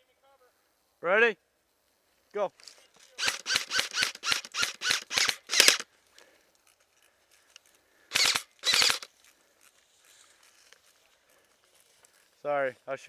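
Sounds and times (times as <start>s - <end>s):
airsoft rifle shots: 3.2s - 5.8s, 8.1s - 9.1s.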